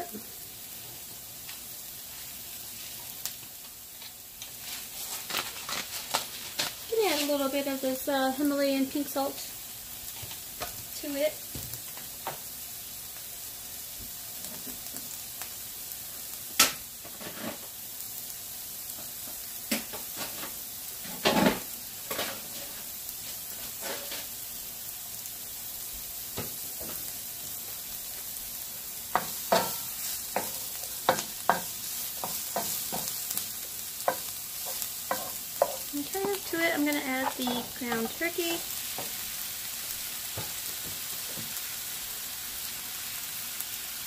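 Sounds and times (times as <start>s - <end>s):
onions sizzling in oil: 0.0s - 44.0s
wooden spoon scraping pan: 29.1s - 39.3s.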